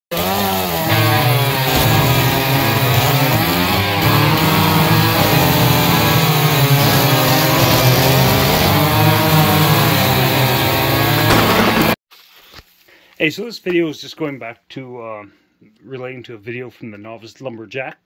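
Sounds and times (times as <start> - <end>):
chainsaws cutting logs: 0.1 - 12.0.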